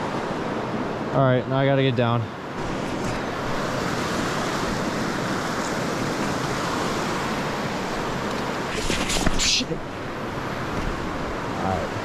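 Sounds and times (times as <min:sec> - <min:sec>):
river rushing: 0:00.0 - 0:12.0.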